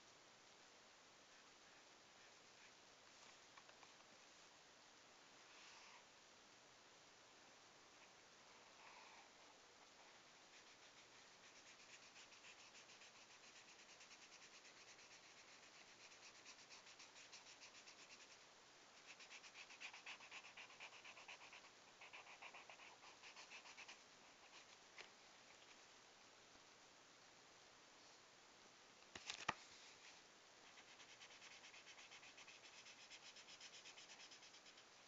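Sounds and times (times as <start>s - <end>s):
marker scratching on paper: 10.6s - 18.4s, 19.0s - 24.7s, 30.7s - 34.8s.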